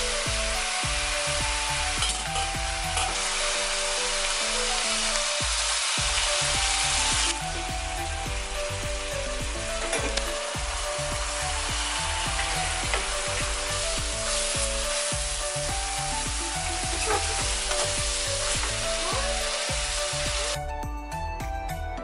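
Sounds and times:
food sizzling in hot oil: 0.0s - 20.6s.

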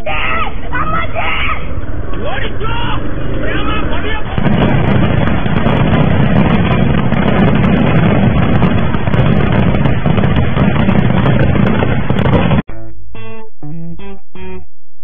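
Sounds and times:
firecrackers banging and crackling: 3.3s - 12.7s.

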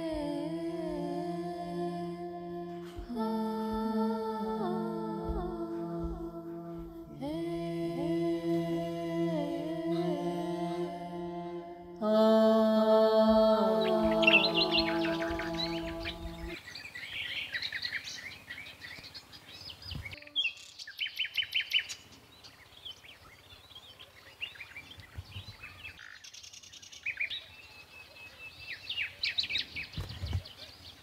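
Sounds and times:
chanted vocal music: 0.0s - 16.6s
small birds chirping: 13.6s - 31.0s.

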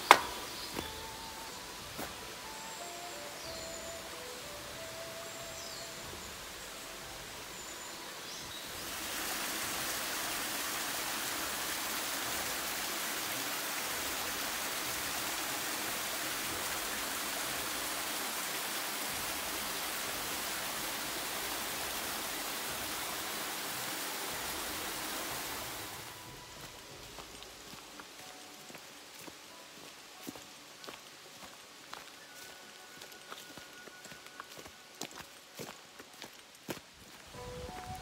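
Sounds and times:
stream running over rocks: 0.0s - 38.0s.

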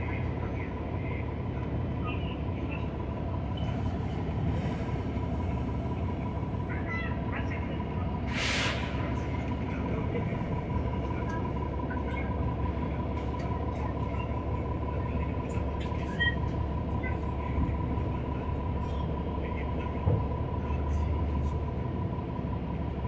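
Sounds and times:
bus diesel engine rumble: 0.0s - 23.0s
road noise: 0.0s - 23.0s
air hiss: 8.3s - 9.0s.

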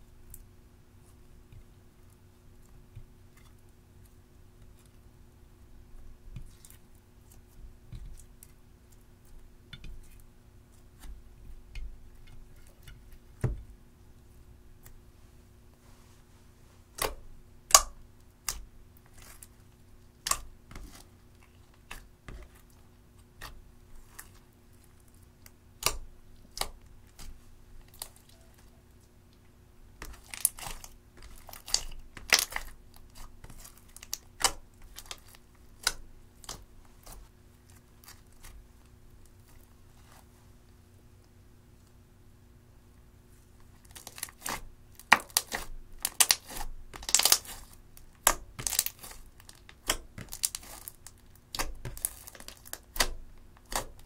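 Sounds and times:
slime clicking and popping: 44.0s - 47.6s.

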